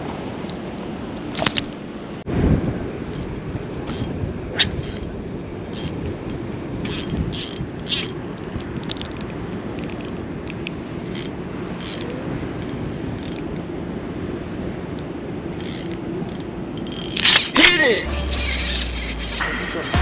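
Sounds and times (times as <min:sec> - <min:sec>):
fishing reel cranking: 0:03.9 - 0:04.1, 0:04.7 - 0:05.1, 0:05.7 - 0:06.0, 0:06.8 - 0:08.2, 0:09.8 - 0:10.1, 0:11.1 - 0:13.4, 0:15.6 - 0:20.0.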